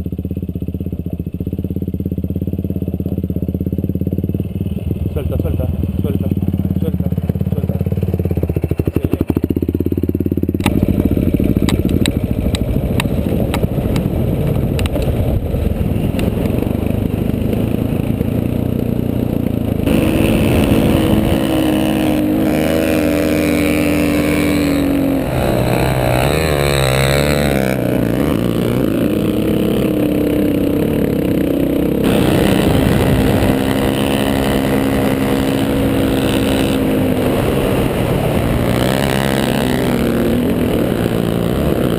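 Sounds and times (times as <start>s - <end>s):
rattling over rough ground: 2.6s - 41.9s
vehicle engine revving: 4.3s - 41.9s.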